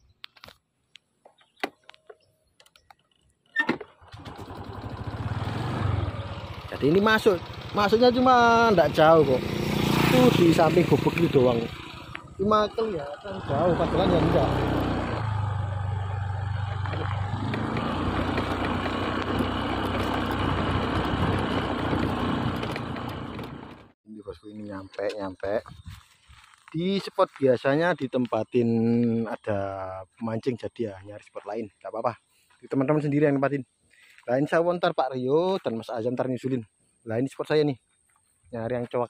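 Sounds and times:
vehicle engine starting and running: 0:03.7 - 0:24.0.

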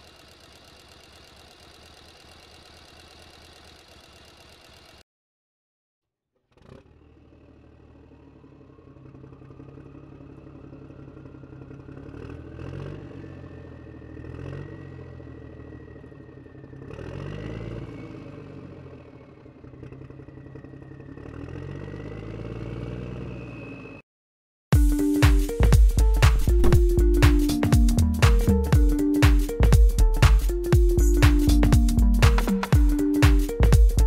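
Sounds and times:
low hum: 0:24.9 - 0:34.0.

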